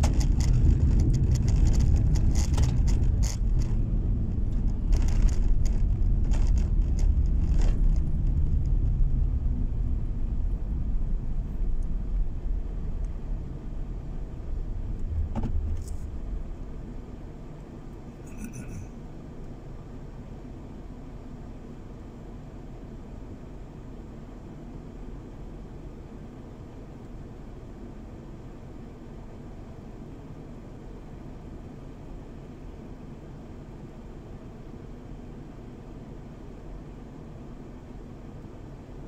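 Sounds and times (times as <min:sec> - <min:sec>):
rattles and clicks: 0:00.0 - 0:08.9
tyres rumbling on packed snow: 0:00.0 - 0:09.5.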